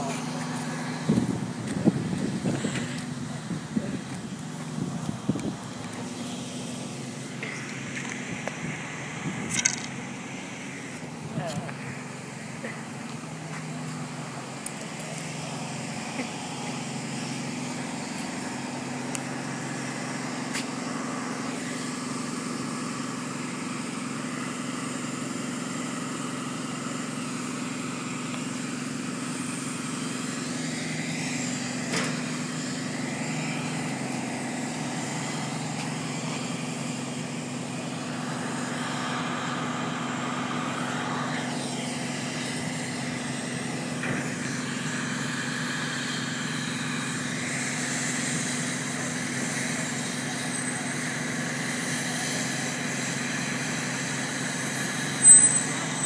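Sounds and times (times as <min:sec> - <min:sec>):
outdoor noise: 0:00.0 - 0:56.0
vehicle engine running: 0:00.0 - 0:56.0
sharp click: 0:09.5 - 0:10.0.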